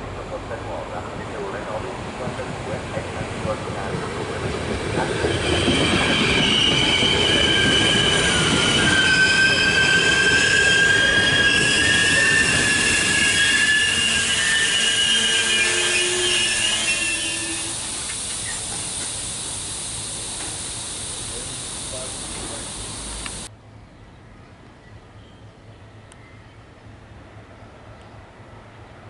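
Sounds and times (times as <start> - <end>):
rumble of train wheels: 0.0 - 23.5
train wheels squealing: 4.4 - 19.0
steady hiss: 15.0 - 23.5.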